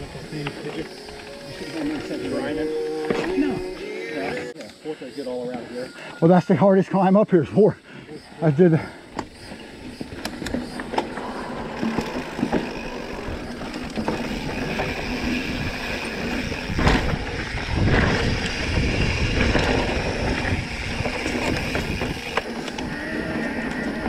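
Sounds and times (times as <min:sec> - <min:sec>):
bike rattling and clicking: 0:00.0 - 0:03.7, 0:09.0 - 0:24.0
bike tyres rolling on dirt: 0:00.0 - 0:03.8, 0:09.0 - 0:24.0
wind rumbling on microphone: 0:09.9 - 0:24.0.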